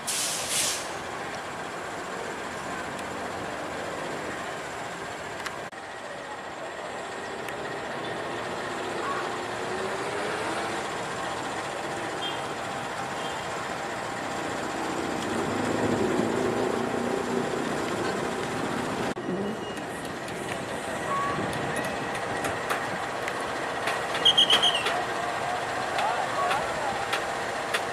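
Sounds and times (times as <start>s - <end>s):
diesel locomotive engine running: 0.0s - 27.9s
faint crowd voices: 24.8s - 27.4s.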